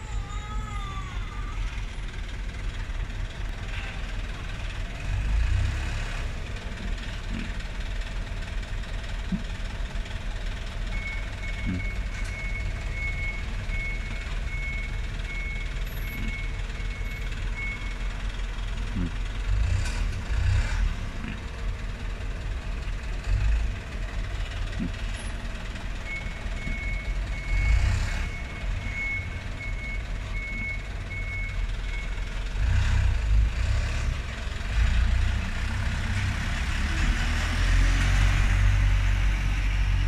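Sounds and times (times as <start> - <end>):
diesel truck engine idling: 0.0 - 37.3
truck passing close by: 2.0 - 9.2, 16.6 - 31.0, 31.7 - 40.0.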